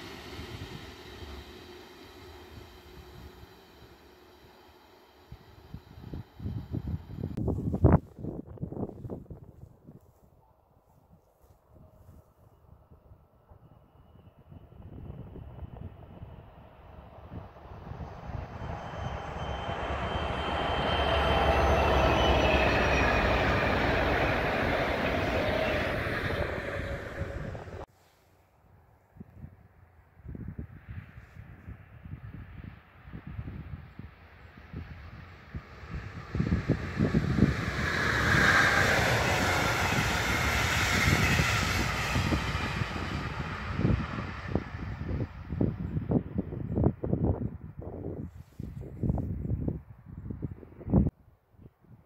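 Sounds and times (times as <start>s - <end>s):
train wheels rolling on rails: 0.0s - 7.5s, 17.6s - 27.9s, 35.5s - 45.1s
diesel locomotives passing: 0.0s - 7.6s, 12.7s - 27.9s, 32.2s - 47.7s.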